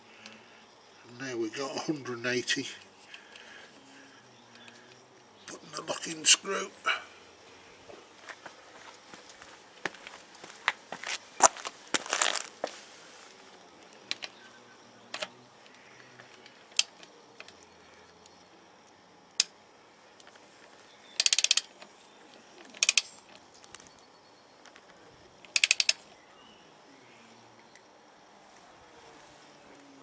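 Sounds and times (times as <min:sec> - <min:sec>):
torque wrench ratchet clicking: 0:21.2 - 0:21.7, 0:22.8 - 0:23.1, 0:25.5 - 0:26.0.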